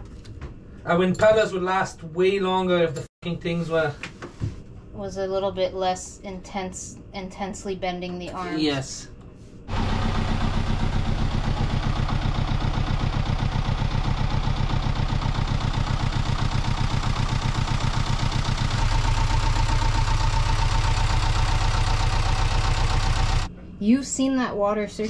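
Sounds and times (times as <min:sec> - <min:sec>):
boat engine idling: 0:09.7 - 0:23.5.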